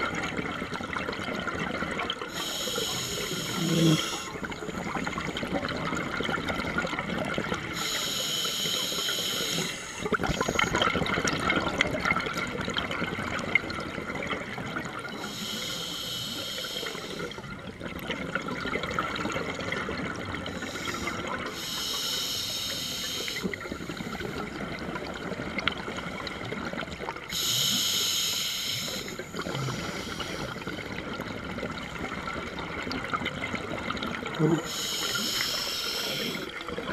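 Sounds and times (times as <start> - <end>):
sea water sloshing and gurgling: 0.0 - 36.9
swimmer breathing: 2.3 - 4.4, 7.8 - 10.7, 15.2 - 17.4, 20.5 - 24.4, 27.3 - 31.0, 34.5 - 36.6.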